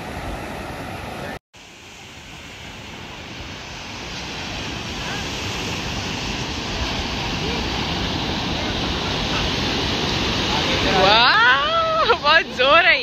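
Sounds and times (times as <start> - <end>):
surf washing on a beach: 0.0 - 13.0.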